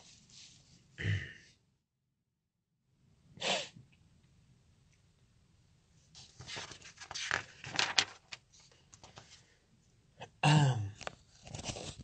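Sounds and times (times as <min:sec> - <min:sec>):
man coughing or clearing throat: 0:01.0 - 0:01.5, 0:10.2 - 0:11.0
man mumbling: 0:01.0 - 0:01.5, 0:10.3 - 0:11.0.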